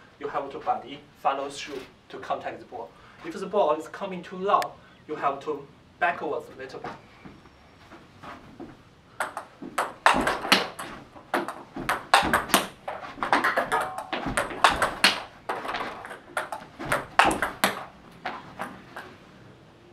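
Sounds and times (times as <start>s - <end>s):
table tennis rally: 6.5s - 19.2s.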